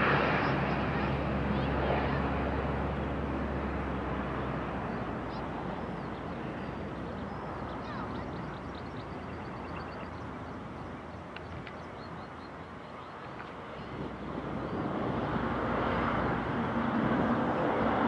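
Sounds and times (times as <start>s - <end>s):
jet engines rumbling: 0.0s - 18.0s
small birds chirping: 4.3s - 14.9s.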